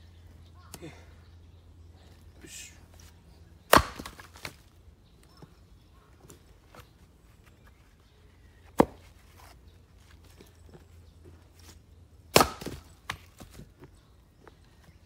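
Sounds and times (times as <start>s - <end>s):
axe splitting wood: 3.7s - 4.6s, 8.8s - 9.1s, 12.3s - 13.5s.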